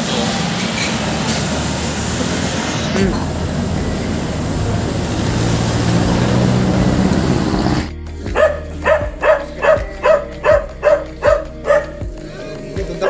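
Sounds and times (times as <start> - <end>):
car engines running: 0.0 - 13.0
dog barking: 8.4 - 12.0.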